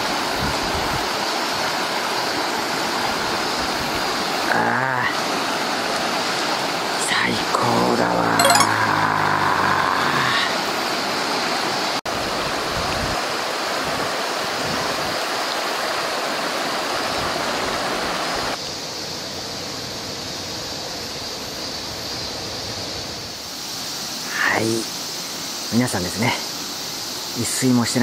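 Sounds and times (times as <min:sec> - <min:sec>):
river rushing over stones: 0:12.1 - 0:18.6.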